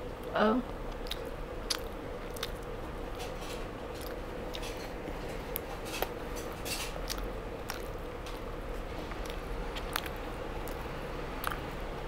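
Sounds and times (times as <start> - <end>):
wet clicks and crunches: 0.8 - 4.9, 5.5 - 11.7
person chewing chicken wing: 0.8 - 11.8.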